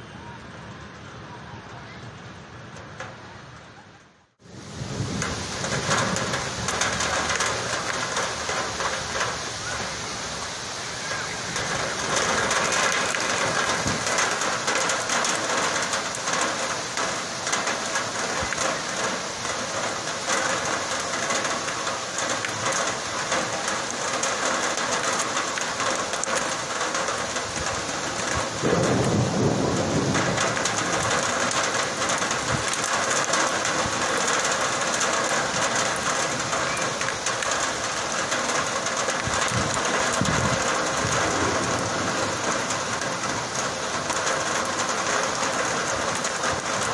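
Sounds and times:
heavy rain pouring: 0:00.0 - 0:46.9
low thunder rumble: 0:04.5 - 0:09.9, 0:26.2 - 0:46.9
thunder clap: 0:04.7 - 0:09.4, 0:11.5 - 0:21.6, 0:25.7 - 0:46.9.

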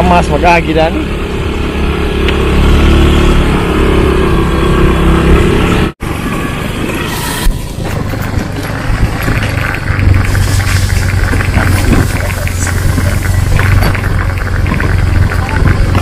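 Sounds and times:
dirt road noise: 0:00.0 - 0:16.0
motorcycle engine running: 0:00.0 - 0:16.0.

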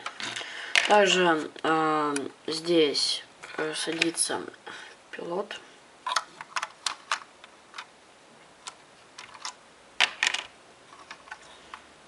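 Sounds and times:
plastic toy bricks clicking: 0:06.1 - 0:07.2.

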